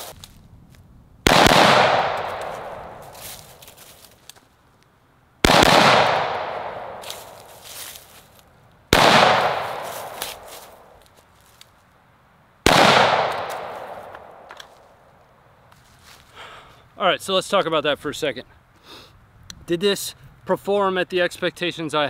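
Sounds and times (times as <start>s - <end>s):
gunshot echo: 1.3s - 3.0s, 5.4s - 7.4s, 8.9s - 10.5s, 12.7s - 14.6s
rifle shots: 1.3s - 3.0s, 5.4s - 7.1s, 8.9s - 10.5s, 12.6s - 14.5s.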